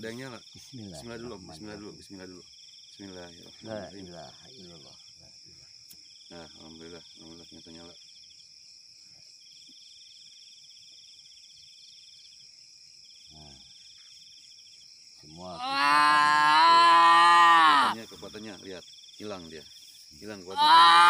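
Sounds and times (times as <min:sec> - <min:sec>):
night insects trilling: 0:00.0 - 0:21.0
long drawn-out call: 0:15.4 - 0:18.1, 0:20.5 - 0:21.0.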